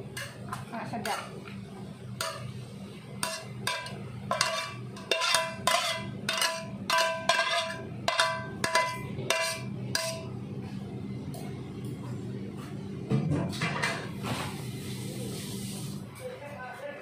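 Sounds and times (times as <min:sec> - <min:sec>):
metal spatula scraping wok: 0:03.2 - 0:10.3.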